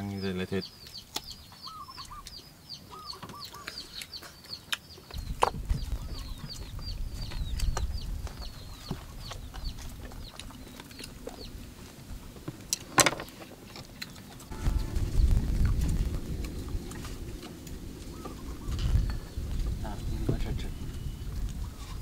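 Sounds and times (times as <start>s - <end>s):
birds peeping: 0.0s - 22.0s
low rumble: 14.5s - 22.0s.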